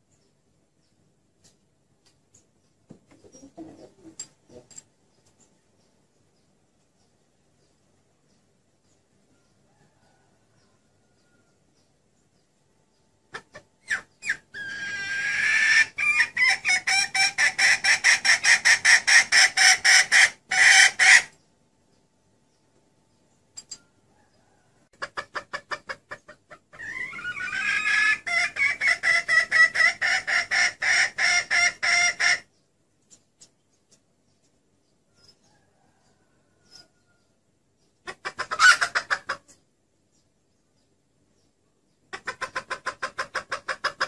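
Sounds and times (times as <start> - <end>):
hen clucking: 1.4 - 5.5, 13.2 - 21.4, 24.1 - 39.7, 41.9 - 44.0.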